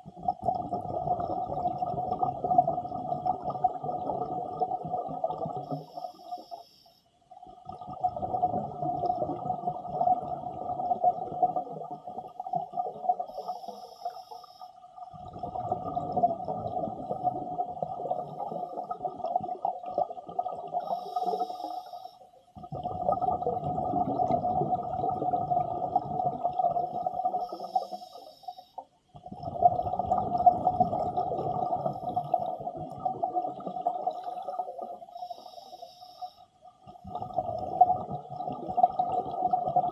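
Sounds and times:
exhalation bubbling underwater: 0.0s - 5.9s, 7.5s - 13.4s, 15.1s - 21.4s, 22.6s - 27.7s, 29.2s - 35.0s, 36.8s - 39.9s
regulator inhalation hiss: 5.7s - 7.1s, 13.3s - 14.8s, 20.8s - 22.3s, 27.3s - 28.8s, 35.1s - 36.6s.

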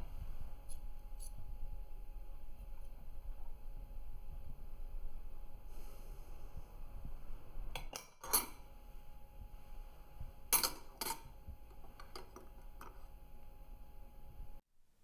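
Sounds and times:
metal spoons clinking: 7.8s - 8.6s, 10.6s - 11.3s.

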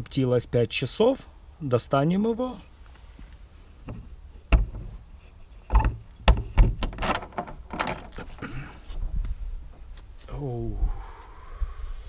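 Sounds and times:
door scraping: 5.6s - 8.4s
door latch clicks and knocks: 5.7s - 8.2s.

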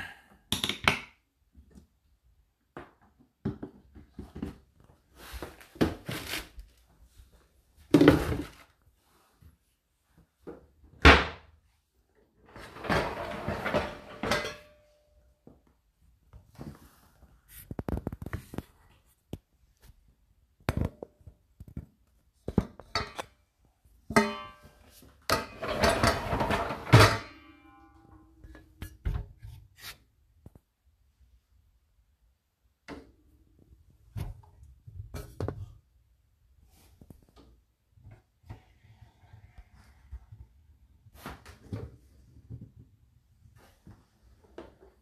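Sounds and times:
household items knocking and clattering: 2.7s - 5.0s, 7.8s - 8.7s, 12.5s - 15.7s, 20.6s - 23.4s, 24.0s - 29.5s.

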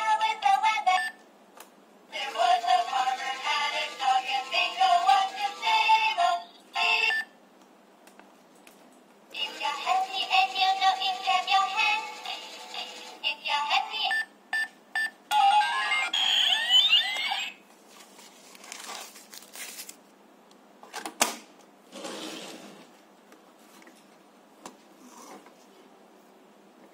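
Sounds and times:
tinny toy melody: 2.2s - 7.2s, 9.4s - 13.3s.

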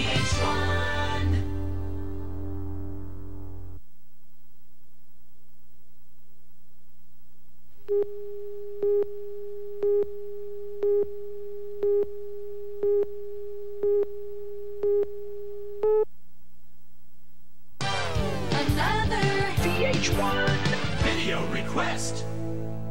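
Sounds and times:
music: 0.0s - 3.7s, 17.8s - 22.9s
steady tone: 0.0s - 19.6s
low hum: 1.2s - 19.6s
mid-pitched countdown beeps: 10.8s - 11.1s, 11.8s - 12.1s, 12.8s - 13.1s, 13.8s - 14.1s, 14.8s - 15.1s.

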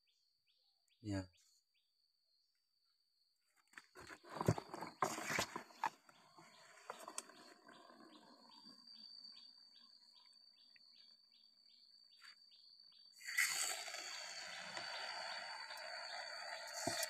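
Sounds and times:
rustling scraping noise: 3.9s - 6.0s
high insect drone: 4.1s - 17.0s.

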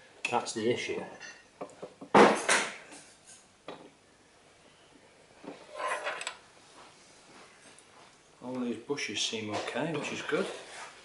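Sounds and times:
metal clunk and scrape: 5.4s - 6.4s.

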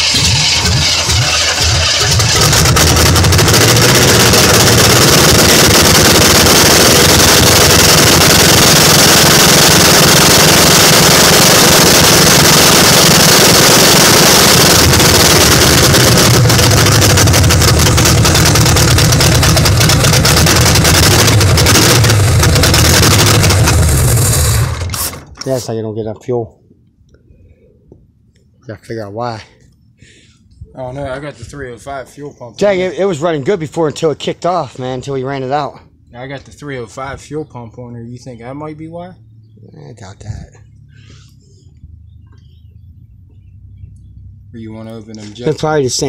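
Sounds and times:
engine running roughly: 0.0s - 25.3s.

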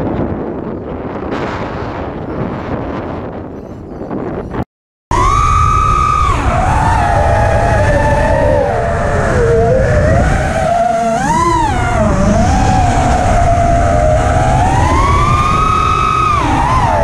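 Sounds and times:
wind rumble on microphone: 0.0s - 17.0s
drone motors whining: 5.1s - 17.0s.

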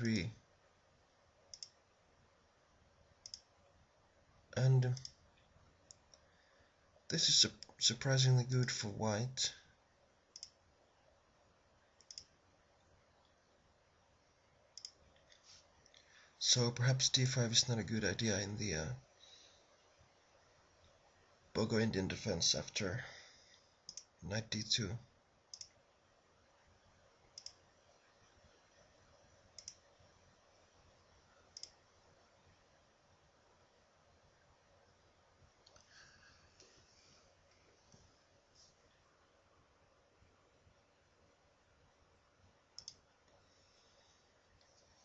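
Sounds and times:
faint room hiss: 0.0s - 45.0s
computer mouse clicks: 1.5s - 1.8s, 3.2s - 3.5s, 4.9s - 5.2s, 10.3s - 10.6s, 12.0s - 12.4s, 14.7s - 16.0s, 23.9s - 24.1s, 25.5s - 25.8s, 27.3s - 27.6s, 29.5s - 29.9s, 31.5s - 31.8s, 42.8s - 43.4s.

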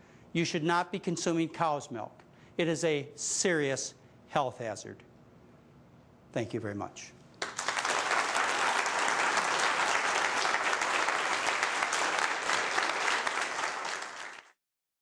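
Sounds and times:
audience applauding: 7.4s - 14.6s.

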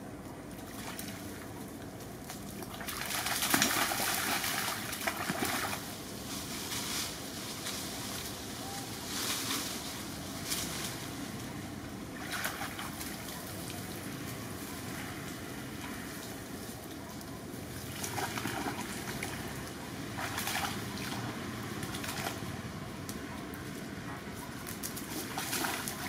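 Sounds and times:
branches rustling: 0.2s - 26.0s
monkeys splashing in water: 2.5s - 5.9s, 12.1s - 14.1s, 17.7s - 22.5s, 24.6s - 26.0s.

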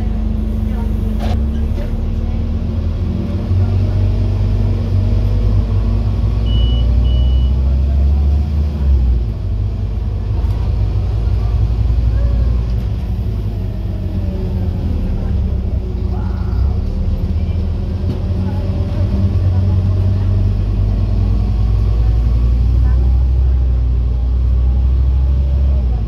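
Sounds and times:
bus diesel engine drone: 0.0s - 26.0s
short high beeps: 6.5s - 7.6s.

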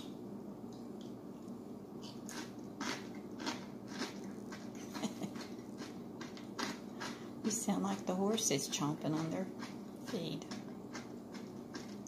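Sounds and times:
man chewing crunchy food: 2.0s - 7.4s, 9.0s - 12.0s.

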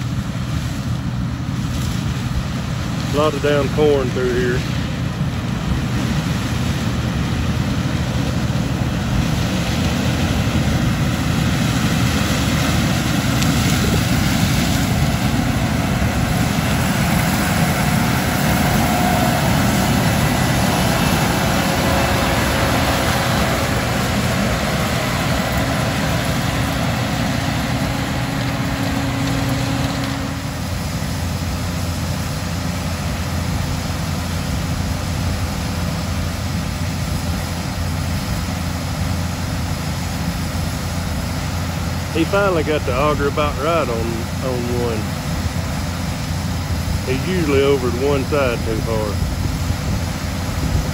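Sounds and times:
combine engine and threshing machinery: 0.0s - 50.9s.

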